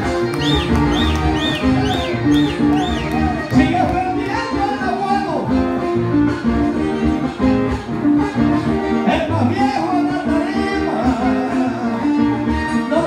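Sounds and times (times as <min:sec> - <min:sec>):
man singing: 0:09.0 - 0:13.0.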